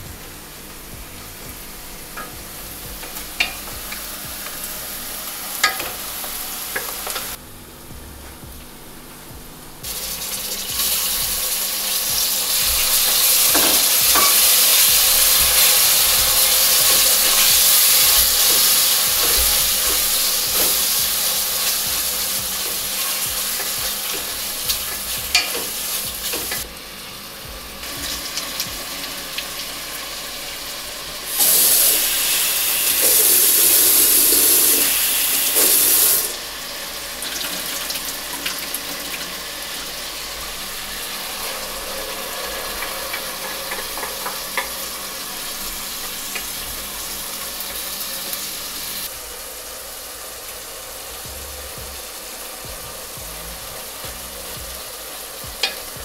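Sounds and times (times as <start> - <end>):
food sizzling in oil: 0.1 - 7.9, 9.6 - 56.0
utensil clicking against pan: 23.5 - 26.6.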